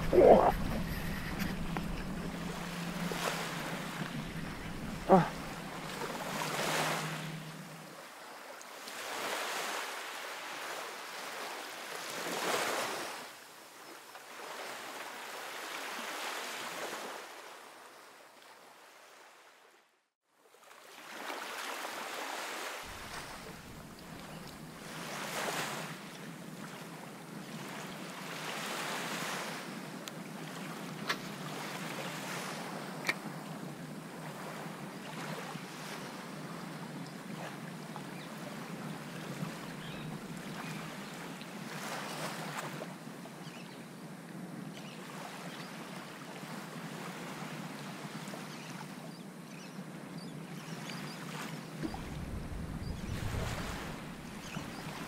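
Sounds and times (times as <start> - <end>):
wind on microphone: 0.0 - 7.6, 51.8 - 55.0
seawater lapping and sloshing: 0.0 - 13.2, 20.5 - 29.7, 34.2 - 36.5, 37.2 - 42.9, 51.2 - 55.0.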